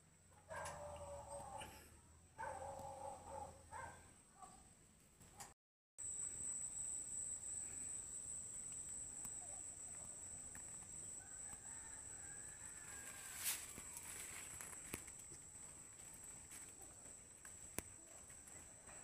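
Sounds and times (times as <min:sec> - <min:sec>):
rooster crowing faintly: 0:11.1 - 0:14.8.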